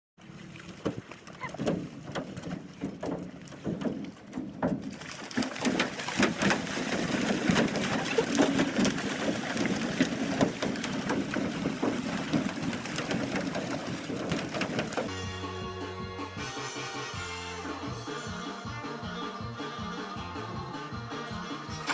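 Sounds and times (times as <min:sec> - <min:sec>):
fish splashing in water: 0:00.2 - 0:15.1
fish thudding against metal canoe: 0:00.7 - 0:15.1.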